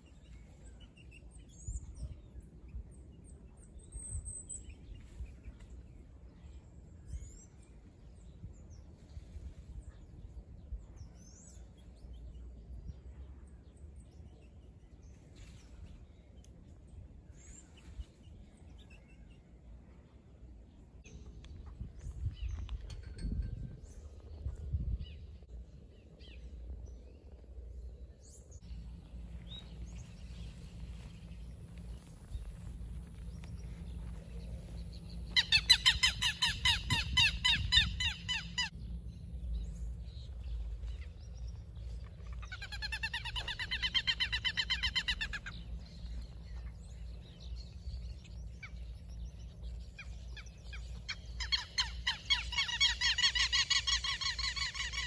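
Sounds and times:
lapwings calling: 51.1 - 55.0.

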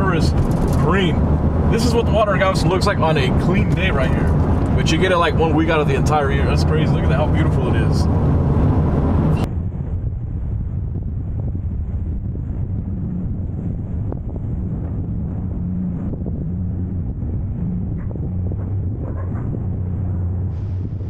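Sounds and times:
low engine rumble: 0.0 - 21.0
wind buffeting microphone: 0.0 - 21.0.

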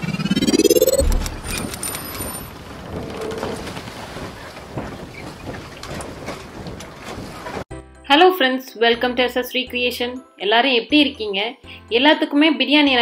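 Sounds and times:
low boom: 0.0 - 2.0.

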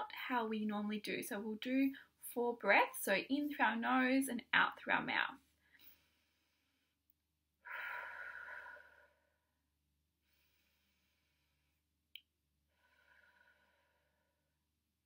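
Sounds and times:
woman breathing out: 7.6 - 9.5, 12.7 - 14.4.

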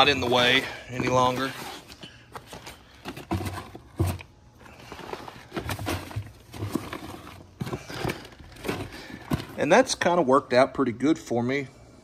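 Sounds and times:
plastic boxes knocking and clunking: 2.3 - 9.9.

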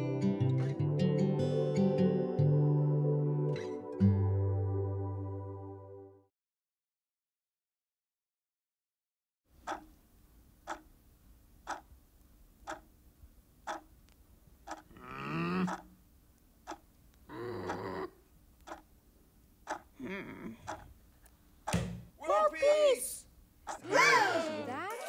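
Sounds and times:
clock ticking: 9.6 - 10.0, 10.6 - 10.9, 11.6 - 11.9, 12.6 - 12.9, 13.6 - 13.9, 14.6 - 15.0, 15.6 - 16.0, 16.6 - 16.9, 17.6 - 18.0, 18.6 - 18.9, 19.6 - 20.0, 20.6 - 20.9
wordless vocal sounds: 14.8 - 15.9, 17.2 - 18.2, 19.8 - 20.9.

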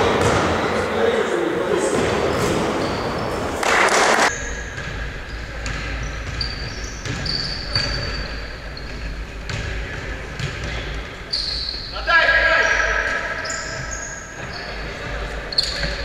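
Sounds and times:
basketball bouncing on gym floor: 0.0 - 0.7, 4.5 - 11.1
high squeak: 6.3 - 8.9, 12.7 - 14.8, 15.5 - 16.0.

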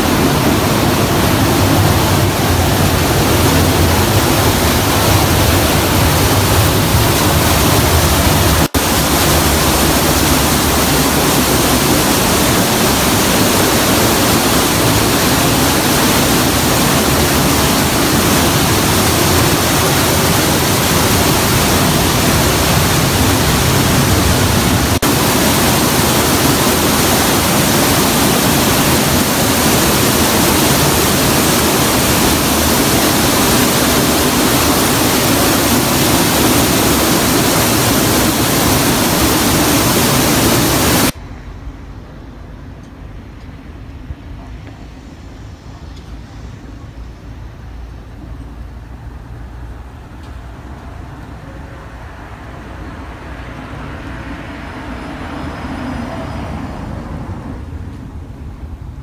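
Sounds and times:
water rushing: 0.0 - 41.2.

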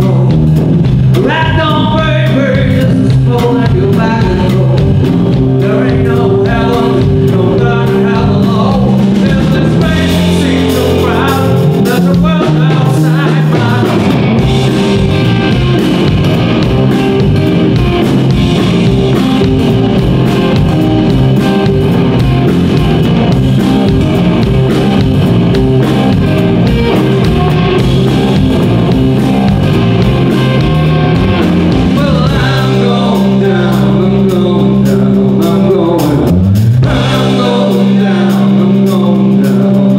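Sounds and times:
man singing: 0.0 - 15.8, 30.4 - 39.9
blues rock band playing: 0.0 - 39.9.

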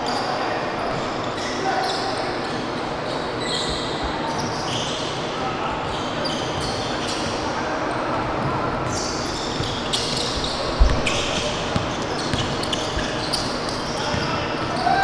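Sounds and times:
murmur of voices in hall: 0.0 - 15.0
sneakers squeaking on hardwood: 0.9 - 5.2, 5.8 - 15.0
basketball bouncing: 10.8 - 13.2.

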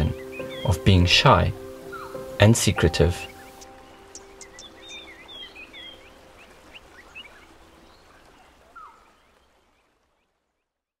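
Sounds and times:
birds chirping and whistling: 0.0 - 0.9, 1.5 - 9.4.

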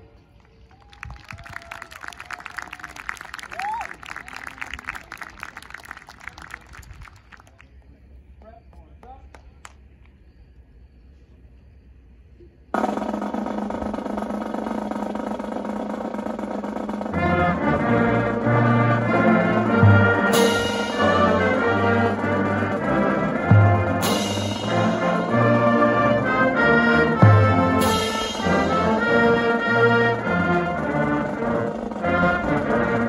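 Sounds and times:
drum roll: 12.8 - 33.0
marching band playing: 12.8 - 33.0
cymbal crashes: 20.1 - 22.0, 24.0 - 25.6.

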